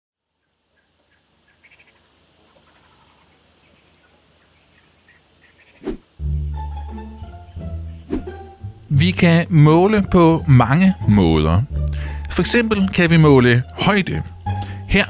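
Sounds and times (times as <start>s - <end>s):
crickets chirping: 0.2s - 15.0s.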